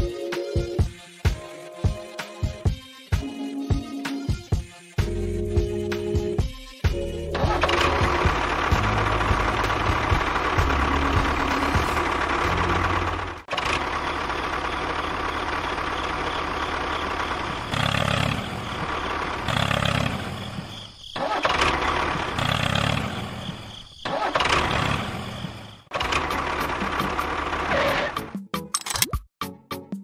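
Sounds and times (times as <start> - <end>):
tractor engine chugging: 7.3 - 28.2.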